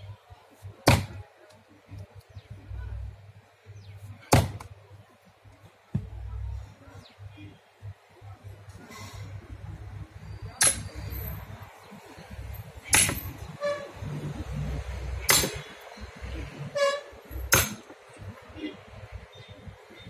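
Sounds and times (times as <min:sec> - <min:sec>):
axe chopping log: 0:00.8 - 0:01.2, 0:04.2 - 0:04.7, 0:12.9 - 0:13.3, 0:15.2 - 0:15.7, 0:17.5 - 0:17.9.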